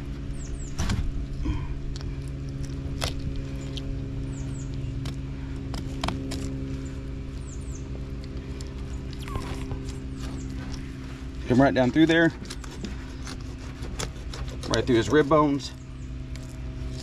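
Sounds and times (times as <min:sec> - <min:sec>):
low mechanical hum: 0:00.0 - 0:17.0
knife cutting along fish backbone: 0:12.4 - 0:15.3.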